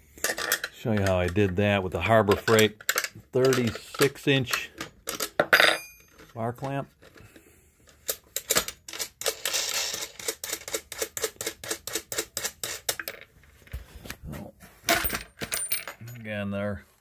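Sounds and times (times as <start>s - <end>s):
small metallic clicks and rattles: 0.2s - 1.6s, 2.3s - 13.3s.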